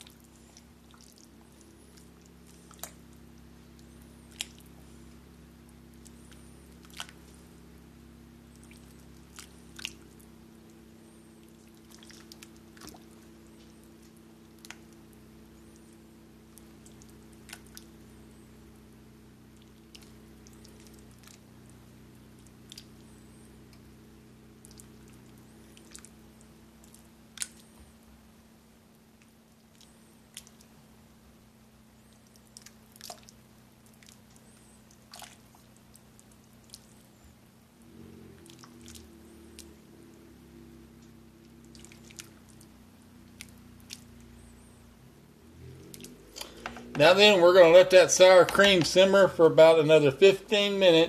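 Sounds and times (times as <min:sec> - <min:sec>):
wet squishes of stirred soup: 0:00.0 - 0:28.0, 0:29.0 - 0:30.8, 0:32.0 - 0:50.6
steady low hum: 0:00.0 - 0:51.0
wet squelching of stirred soup: 0:05.8 - 0:07.6, 0:08.6 - 0:10.8, 0:11.4 - 0:15.1, 0:16.6 - 0:18.0, 0:19.5 - 0:21.5, 0:32.2 - 0:37.0, 0:41.5 - 0:44.1.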